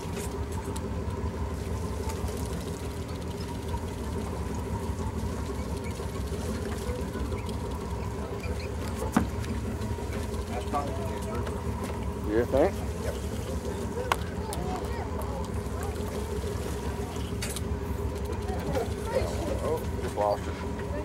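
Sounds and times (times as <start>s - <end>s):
boat engine idling: 0.0s - 21.0s.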